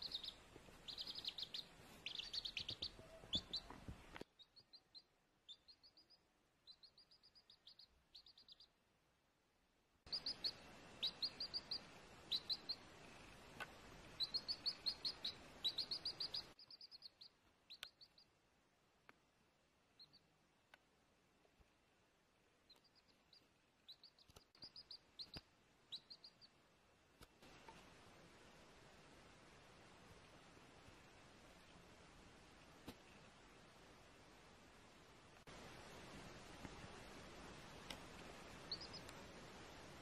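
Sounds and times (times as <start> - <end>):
chicks peeping: 0.0 - 8.7, 10.1 - 18.3, 20.0 - 20.3, 22.7 - 26.6, 38.5 - 39.2.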